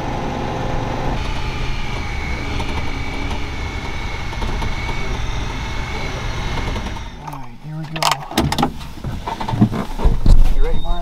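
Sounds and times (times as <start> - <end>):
vehicle engine rumble: 0.0 - 11.0
thin high whine: 0.6 - 8.4.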